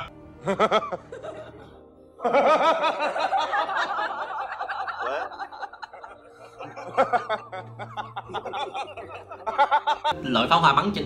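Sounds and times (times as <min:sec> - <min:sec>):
film music: 0:00.0 - 0:11.0
man laughing: 0:02.2 - 0:10.1.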